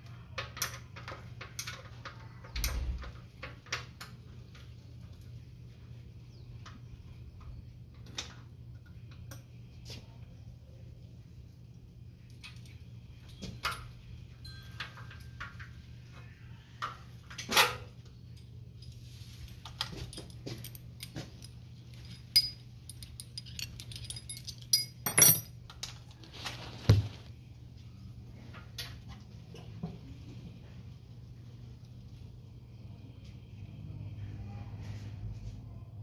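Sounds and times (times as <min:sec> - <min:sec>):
steady low hum: 0:03.0 - 0:26.2, 0:27.0 - 0:36.0
metal tools clinking and rattling: 0:12.4 - 0:15.8, 0:17.3 - 0:26.1.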